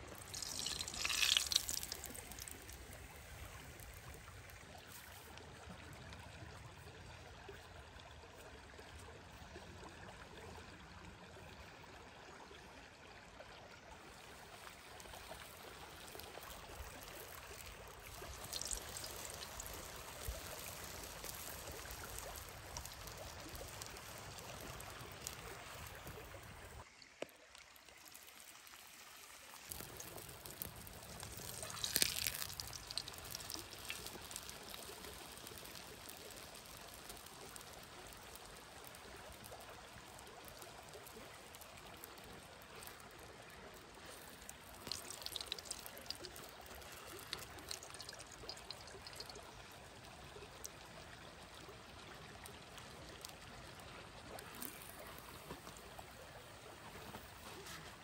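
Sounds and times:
dough sizzling in hot oil: 0:00.0 - 0:05.3, 0:14.6 - 0:26.8, 0:28.0 - 0:43.1, 0:43.8 - 0:49.4, 0:54.4 - 0:55.8.

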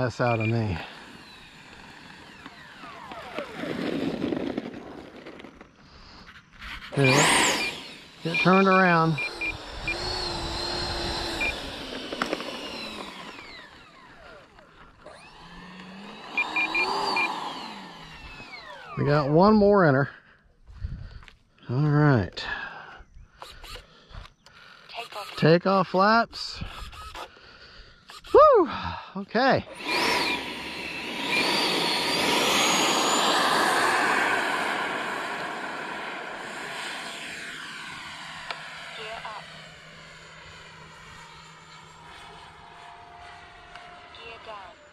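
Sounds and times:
electric ducted fans whining: 0:00.0 - 0:20.0, 0:29.5 - 0:44.9.

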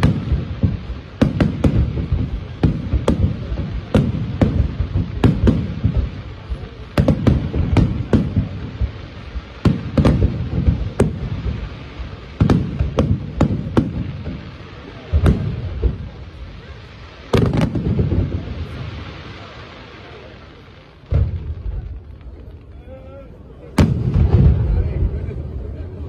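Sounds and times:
fireworks bursting: 0:00.0 - 0:26.0
low rumbling echo: 0:23.4 - 0:26.0.

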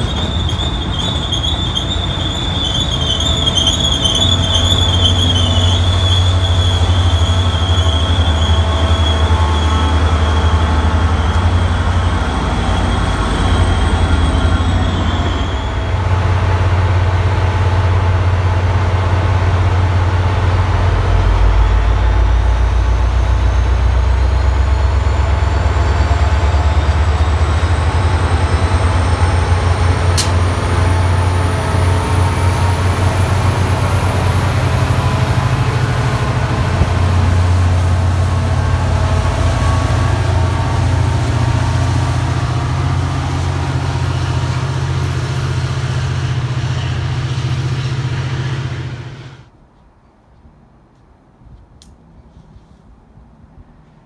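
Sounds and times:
diesel locomotive rumbling: 0:00.0 - 0:49.6
sharp click: 0:30.2 - 0:30.4.

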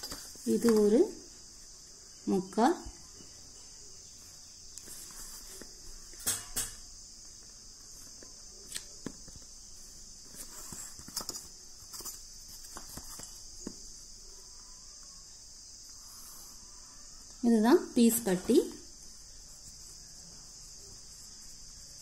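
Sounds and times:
steady high hiss: 0:00.0 - 0:22.0.

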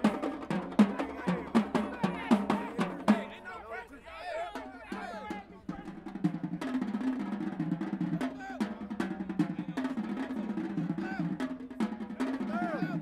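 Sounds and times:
snare drum rolls: 0:00.0 - 0:03.4, 0:04.5 - 0:13.0
tenor and bass drums: 0:00.0 - 0:03.5.

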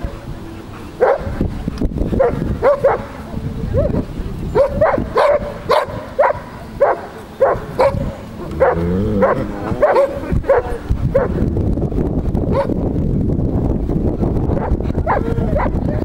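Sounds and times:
dog barking: 0:01.0 - 0:01.4, 0:02.2 - 0:03.2, 0:04.6 - 0:11.4, 0:12.5 - 0:12.7, 0:14.6 - 0:15.8.

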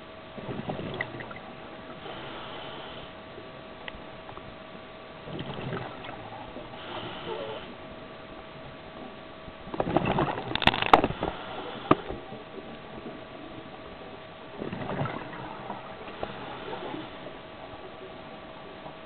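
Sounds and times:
faint steady hum: 0:00.0 - 0:19.0
rush of regulator bubbles: 0:00.4 - 0:01.7, 0:05.2 - 0:07.7, 0:14.6 - 0:17.1.

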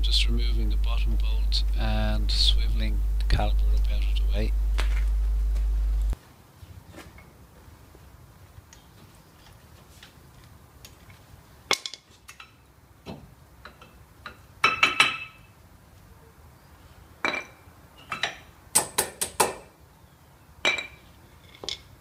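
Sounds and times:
metal brake pads clinking: 0:20.6 - 0:21.9.

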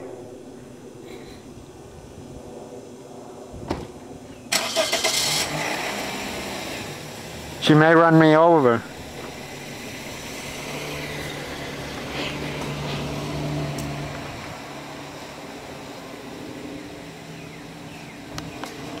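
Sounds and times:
car engine hum passing by: 0:04.5 - 0:19.0.

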